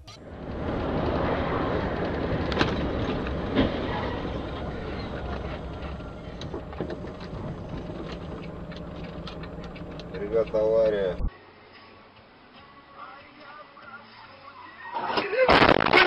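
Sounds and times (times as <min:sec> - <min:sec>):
vehicle driving on wet road: 0:00.1 - 0:11.3.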